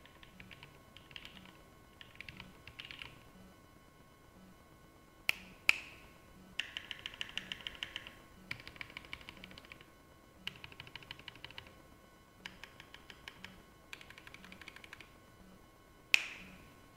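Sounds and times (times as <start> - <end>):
fast typing on mechanical keyboard: 0.0 - 3.1, 6.6 - 9.8, 10.5 - 11.7, 12.5 - 15.1.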